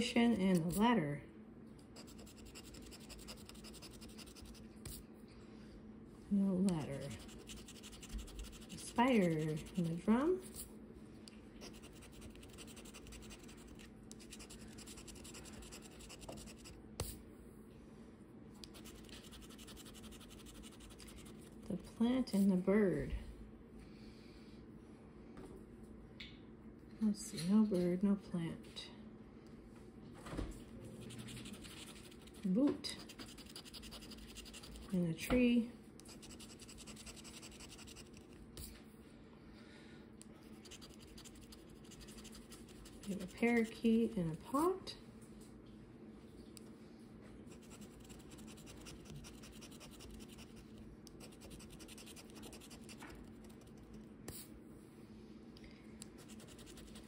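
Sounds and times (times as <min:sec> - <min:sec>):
scratching lottery ticket: 0:02.0 - 0:05.0, 0:06.8 - 0:10.2, 0:11.6 - 0:16.7, 0:18.7 - 0:21.6, 0:31.0 - 0:35.0, 0:36.0 - 0:38.4, 0:40.5 - 0:43.8, 0:47.5 - 0:53.9, 0:56.2 - 0:57.0
scratch-off ticket scraping: 0:07.0 - 0:10.0.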